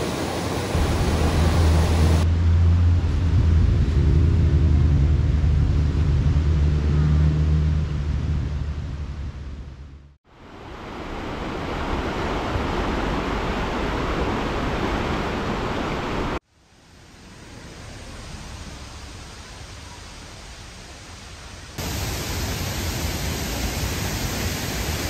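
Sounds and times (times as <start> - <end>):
mountain stream rushing: 0.0 - 2.3, 10.3 - 25.0.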